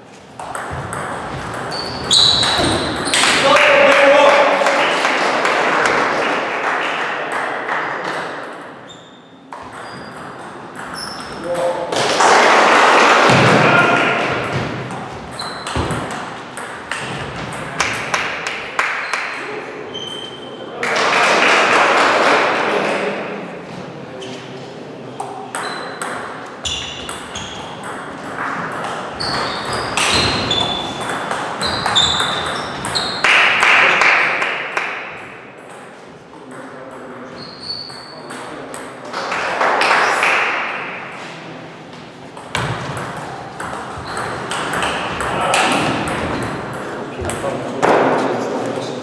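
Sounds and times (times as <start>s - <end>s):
table tennis balls pinging: 0.2s - 3.5s, 7.2s - 19.4s, 25.2s - 33.7s, 42.3s - 48.1s
loud voices: 2.1s - 8.4s, 11.4s - 15.1s, 42.6s - 49.0s.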